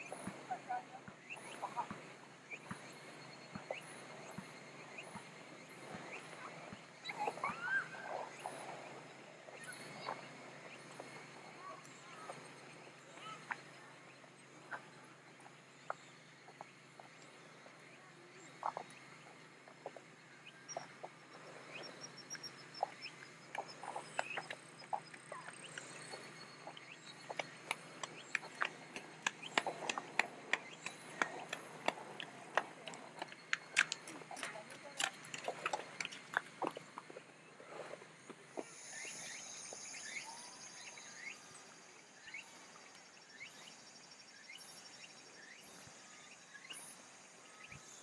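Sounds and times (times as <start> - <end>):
faint high insect hum: 0.0 - 48.0.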